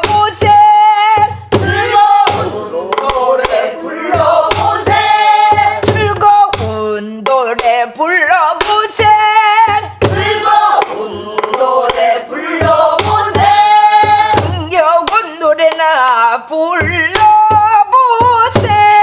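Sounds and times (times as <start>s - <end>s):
woman singing folk song: 0.0s - 1.5s, 5.7s - 10.0s, 13.1s - 19.0s
barrel drum strokes: 0.0s - 6.4s, 10.0s - 14.7s.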